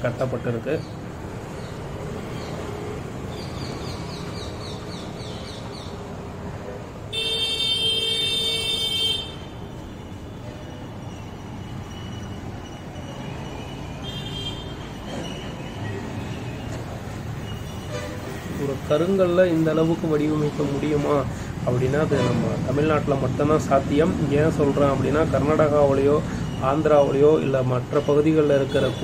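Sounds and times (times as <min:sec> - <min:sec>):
street traffic: 0:00.0 - 0:29.0
vehicle horn honking: 0:07.1 - 0:10.4, 0:14.0 - 0:15.0.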